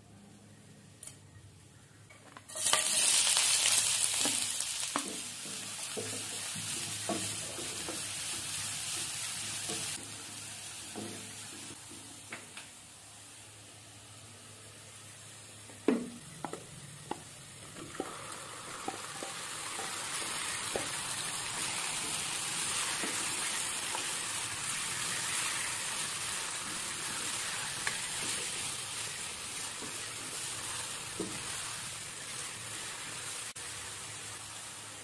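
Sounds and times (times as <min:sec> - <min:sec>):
chicken sizzling in oil: 0:02.5 - 0:11.8, 0:17.8 - 0:35.0.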